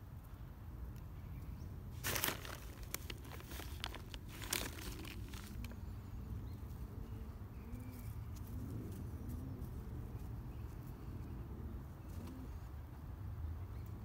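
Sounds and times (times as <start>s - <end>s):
dove cooing: 4.5s - 13.1s.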